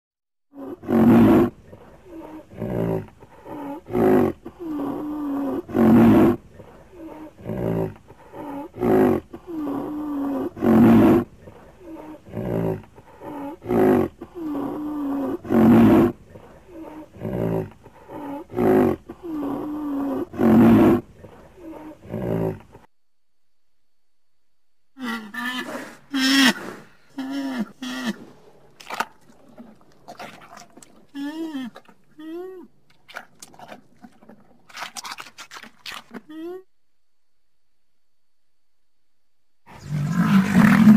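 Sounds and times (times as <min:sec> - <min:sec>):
animal grunts: 0:00.6 - 0:22.9, 0:39.7 - 0:40.9
animal roar-like calls: 0:39.7 - 0:40.9.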